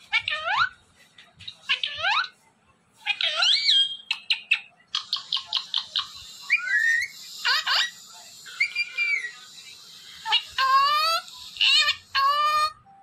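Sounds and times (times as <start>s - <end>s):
parrot chirps: 3.0s - 12.8s
parrot whistles: 6.5s - 9.4s.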